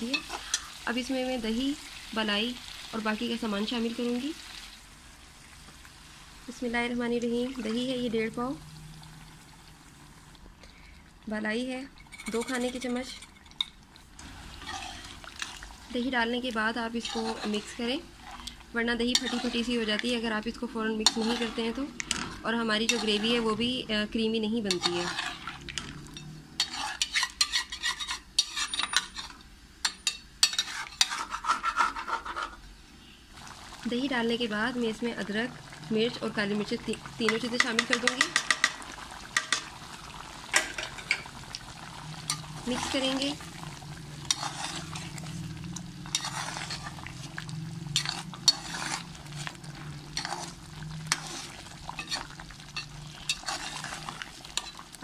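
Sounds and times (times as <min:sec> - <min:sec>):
gravy sizzling: 0:00.0 - 0:55.0
metal spoon scraping metal pot: 0:11.9 - 0:13.7, 0:14.5 - 0:15.6, 0:16.9 - 0:20.2, 0:20.9 - 0:23.8, 0:24.6 - 0:32.6, 0:44.2 - 0:47.3, 0:47.9 - 0:54.9
spoon clinking against pot: 0:37.3 - 0:38.8.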